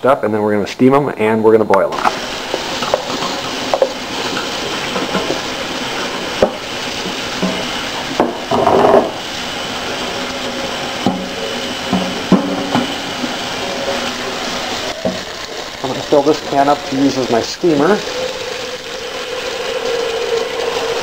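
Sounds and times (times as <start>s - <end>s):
tap water running into colander: 1.9s - 21.0s
colander and tub knocks: 2.8s - 5.5s, 6.2s - 9.2s, 11.0s - 14.0s.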